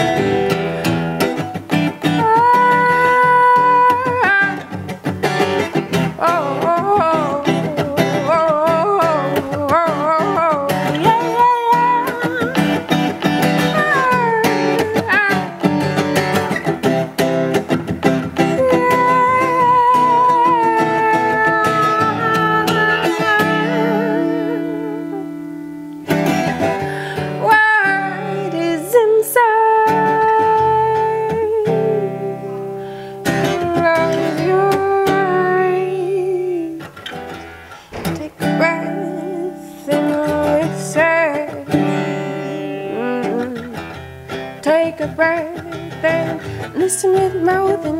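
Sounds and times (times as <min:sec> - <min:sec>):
strummed acoustic guitar: 0:00.0 - 0:47.9
woman singing soul: 0:00.0 - 0:47.9.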